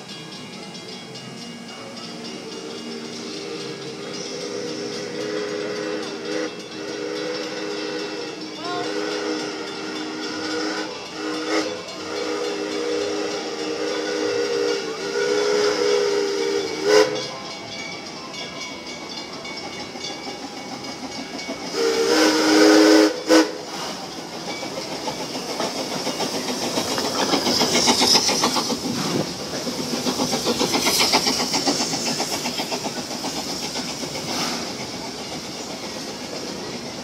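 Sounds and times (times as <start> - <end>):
steam hissing: 0.0 - 37.0
steam locomotive chuffing: 0.0 - 37.0
steam whistle blast: 4.3 - 17.3, 21.7 - 24.0.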